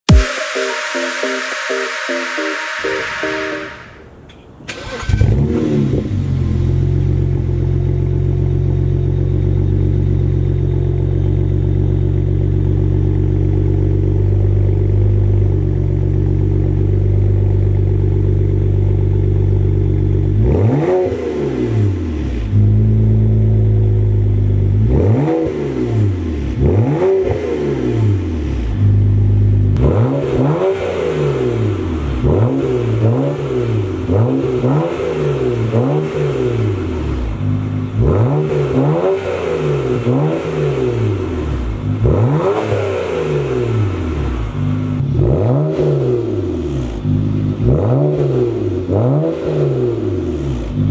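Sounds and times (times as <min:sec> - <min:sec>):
car engine idling and revving: 0:04.4 - 0:50.9.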